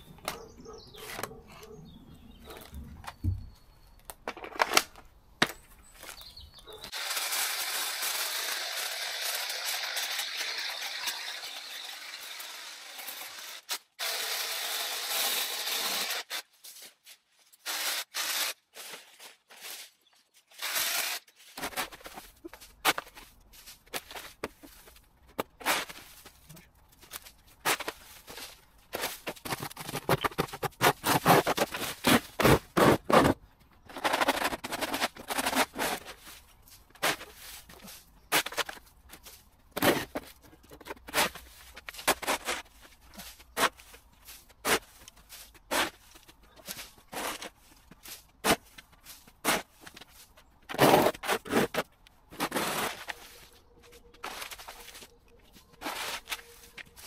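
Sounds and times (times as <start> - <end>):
broom sweeping on tarmac: 21.4 - 25.0, 35.7 - 38.6, 42.4 - 50.3, 52.4 - 55.1, 55.8 - 57.0.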